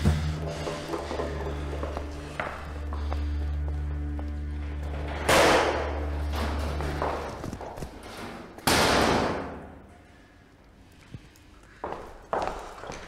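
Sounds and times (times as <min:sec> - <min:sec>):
held low music chord: 0:00.0 - 0:07.6.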